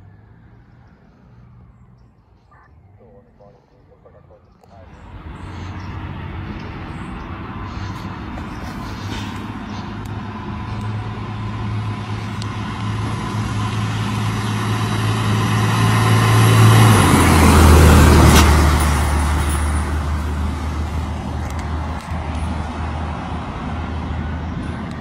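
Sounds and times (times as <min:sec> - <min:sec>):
fire engine passing by: 0:00.0 - 0:25.0.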